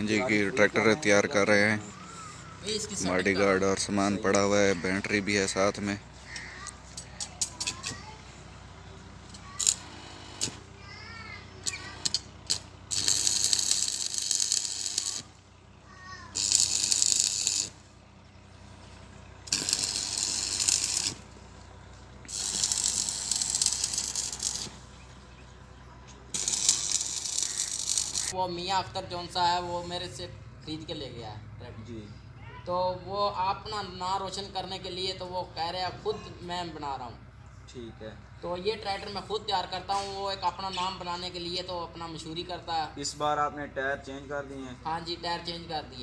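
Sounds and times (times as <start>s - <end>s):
metal parts clicking and rattling: 11.6s - 15.3s, 16.3s - 17.8s, 19.5s - 21.2s, 22.3s - 24.8s, 26.3s - 28.4s
hose nozzle hissing: 16.3s - 17.8s, 19.5s - 21.3s, 22.3s - 24.8s, 26.3s - 28.4s.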